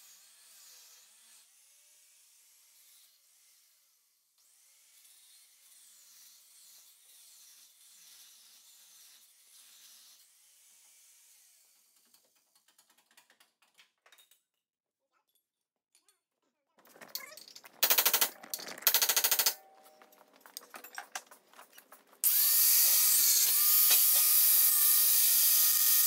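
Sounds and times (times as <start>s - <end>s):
rapid clicks: 16.9s - 22.2s
mechanical tool noise: 16.9s - 26.0s.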